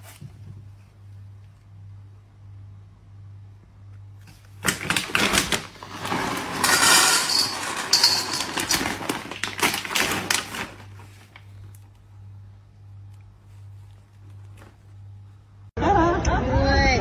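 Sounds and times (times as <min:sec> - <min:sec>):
kibble rattling into metal bowl: 0:04.6 - 0:11.4.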